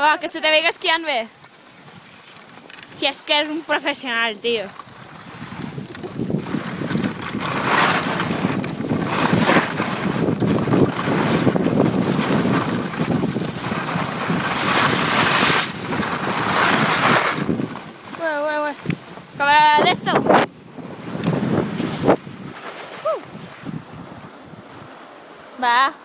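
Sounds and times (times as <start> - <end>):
skis sliding on snow: 0.0 - 25.6
wind rushing over microphone: 4.8 - 25.0.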